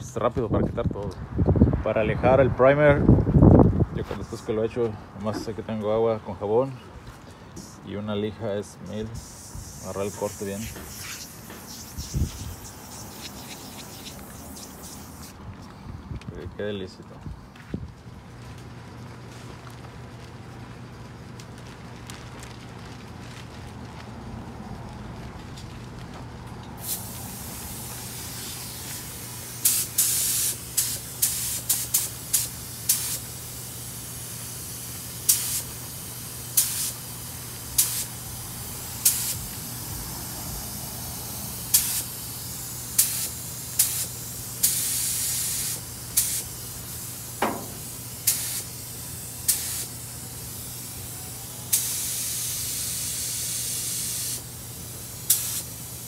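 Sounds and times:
paint spray gun hissing: 0:09.1 - 0:15.4, 0:26.8 - 0:56.0.

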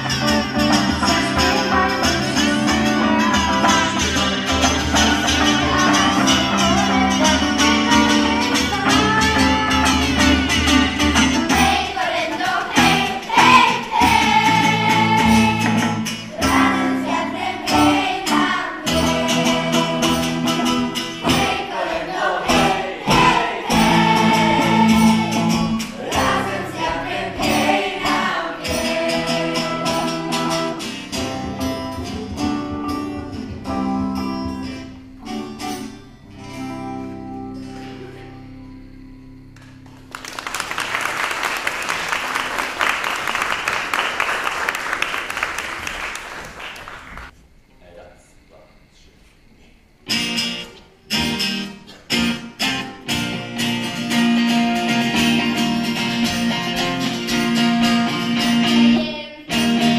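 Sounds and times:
live band playing a song: 0:00.0 - 0:21.8, 0:22.4 - 0:37.0, 0:50.1 - 0:59.9
plucked guitar: 0:00.0 - 0:40.2, 0:50.1 - 0:59.9
audience applause: 0:39.8 - 0:47.3.

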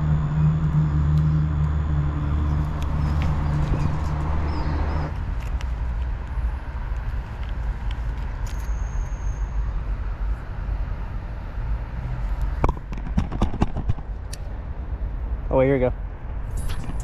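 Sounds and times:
low outdoor rumble: 0:00.0 - 0:17.0
thin high whistle: 0:08.5 - 0:09.6.

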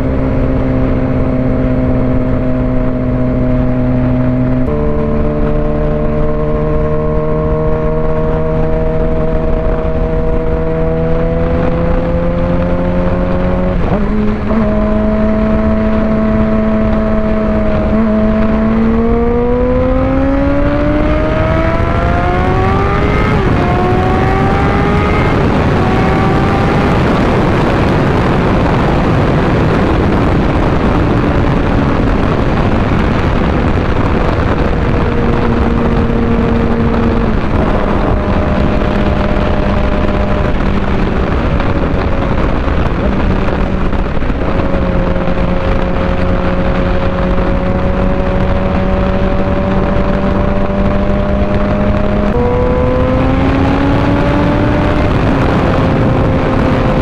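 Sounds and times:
motorcycle engine revving: 0:00.0 - 0:57.0
rush of wind noise: 0:00.0 - 0:57.0.

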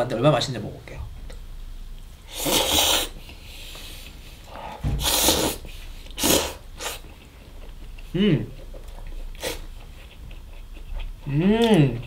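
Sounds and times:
person slurping noodles: 0:02.3 - 0:03.2, 0:04.5 - 0:07.1, 0:09.4 - 0:09.7.

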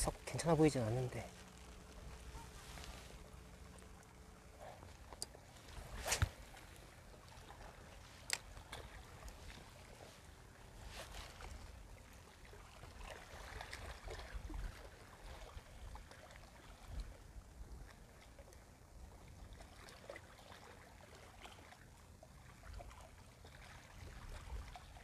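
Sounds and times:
small waves lapping on rocks: 0:00.0 - 0:25.0
wind rumble on microphone: 0:13.5 - 0:18.0.

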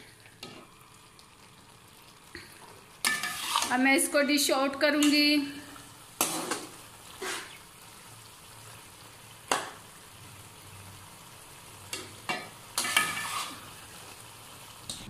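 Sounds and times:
faint sizzle of frying: 0:00.0 - 0:15.0
spatula scraping a wok: 0:03.0 - 0:03.9, 0:06.2 - 0:07.6, 0:12.3 - 0:14.0.

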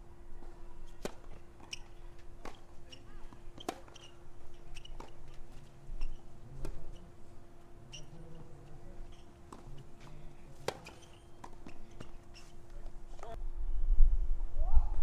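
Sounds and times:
tennis balls bouncing on clay: 0:00.4 - 0:05.6, 0:09.1 - 0:13.4
tennis balls struck by rackets: 0:01.0 - 0:05.7, 0:09.1 - 0:13.4.

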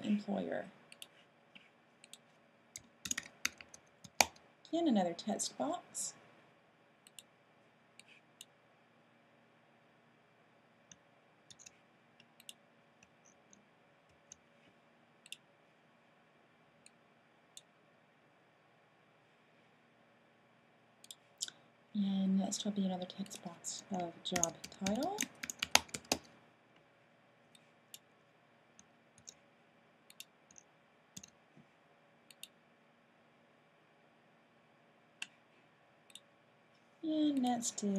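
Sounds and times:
computer mouse clicks: 0:00.9 - 0:01.2, 0:02.0 - 0:04.4, 0:07.0 - 0:07.3, 0:08.0 - 0:08.5, 0:10.9 - 0:14.4, 0:15.2 - 0:15.4, 0:23.2 - 0:26.3, 0:28.8 - 0:29.4, 0:30.1 - 0:31.4, 0:32.3 - 0:32.6, 0:36.1 - 0:36.3
mouse and keyboard clicks: 0:02.8 - 0:04.4, 0:11.5 - 0:12.6.

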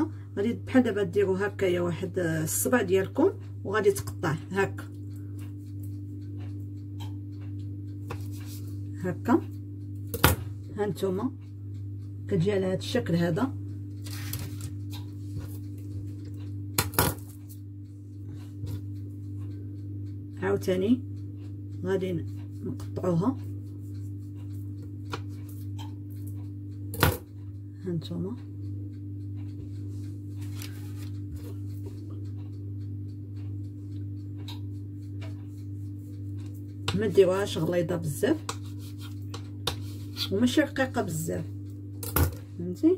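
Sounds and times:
low electrical hum: 0:00.0 - 0:42.9
knife slicing dough on stone: 0:38.5 - 0:40.4.

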